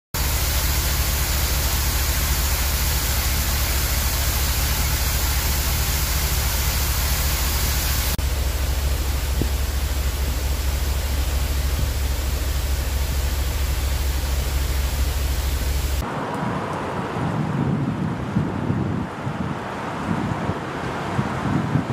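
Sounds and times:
water pouring and splashing: 0.2 - 16.0.

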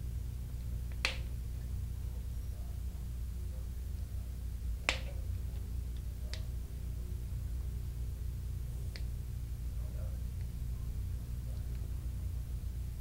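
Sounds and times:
steady low hum: 0.0 - 13.0
small sharp wire clicks: 0.9 - 1.3, 4.8 - 6.5.

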